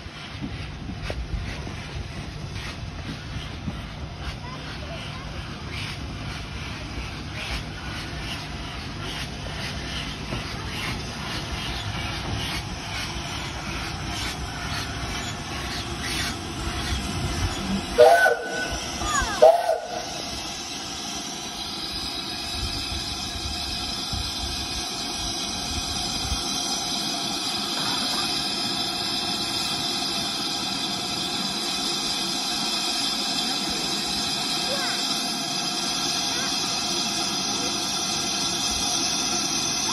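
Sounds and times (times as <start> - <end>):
hiss of escaping steam: 0.0 - 39.9
steam locomotive running: 0.0 - 39.9
steam whistle blasts: 17.9 - 20.2.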